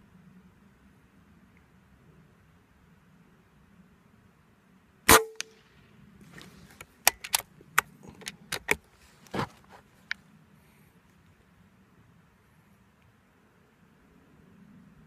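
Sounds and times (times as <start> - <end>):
air rifle shot: 5.1 - 5.5
rifle reloading clicks: 6.8 - 8.8.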